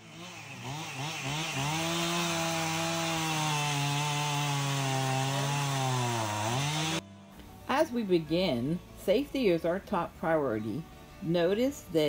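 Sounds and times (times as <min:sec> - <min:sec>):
chainsaw revving and cutting: 0:00.0 - 0:07.1.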